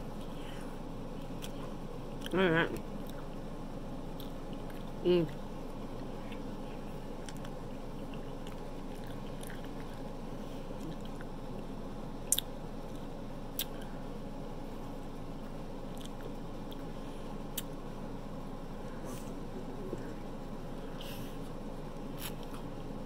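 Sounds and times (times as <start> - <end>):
steady low hum: 0.0 - 23.0
chewing and biting pizza: 5.8 - 11.7, 15.0 - 17.7, 22.0 - 22.8
sharp mouth clicks: 12.3 - 12.5.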